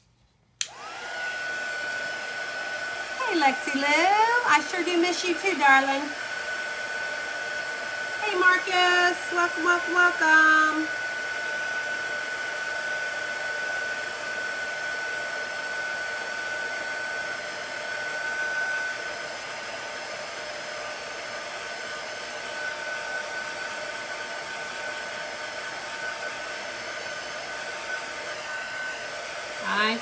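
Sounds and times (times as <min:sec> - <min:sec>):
heat tool blowing hot air: 0:00.6 - 0:30.0.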